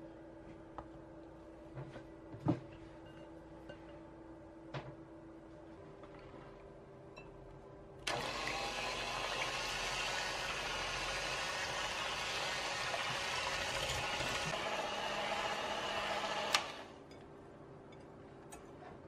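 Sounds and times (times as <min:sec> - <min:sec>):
electric hand mixer whirring: 0:08.1 - 0:17.0.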